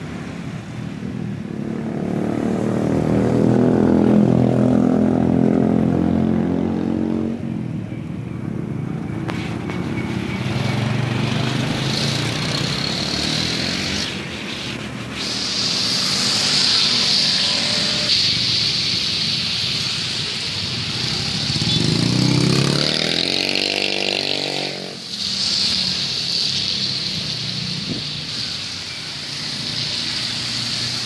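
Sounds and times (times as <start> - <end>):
motorcycles passing by: 0.0 - 31.0
hiss: 9.2 - 31.0.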